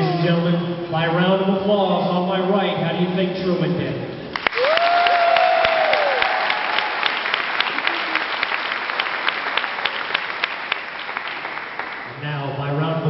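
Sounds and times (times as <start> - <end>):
person whooping: 0.0 - 0.6, 4.6 - 6.8
audience applauding: 4.3 - 12.2.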